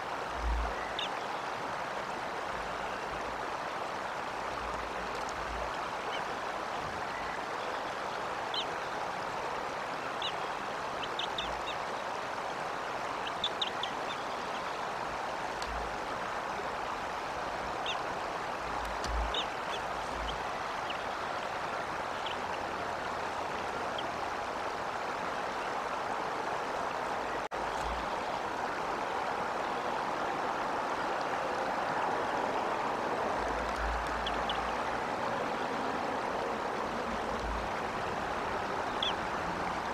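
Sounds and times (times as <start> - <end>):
wind buffeting bumps: 18.7 - 20.4.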